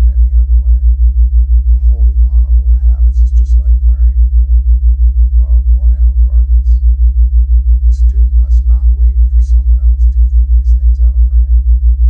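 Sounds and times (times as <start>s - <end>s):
very faint voice: 0.0s - 0.9s, 1.7s - 4.2s, 5.4s - 6.8s, 7.8s - 11.6s
deep pulsing synthetic tone: 0.0s - 12.0s.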